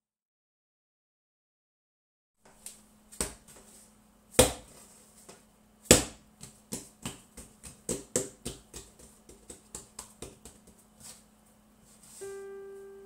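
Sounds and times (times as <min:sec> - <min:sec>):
hands slapping and patting dough: 0:02.5 - 0:03.7, 0:04.3 - 0:11.3.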